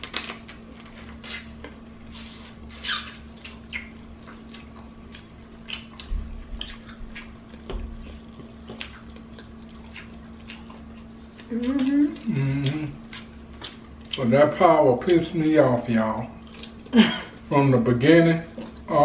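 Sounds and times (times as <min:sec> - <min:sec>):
lips smacking and sucking: 0:00.0 - 0:07.4.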